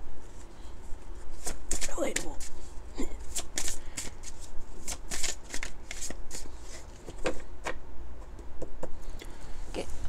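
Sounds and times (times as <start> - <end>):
cards being shuffled: 1.3 - 7.4.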